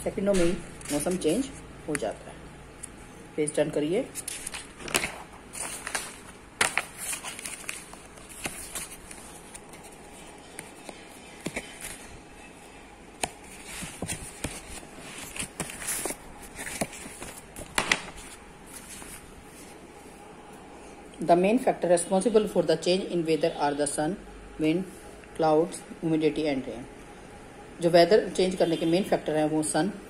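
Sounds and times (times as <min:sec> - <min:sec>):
paper pages turning: 0:04.1 - 0:12.2, 0:13.2 - 0:19.8.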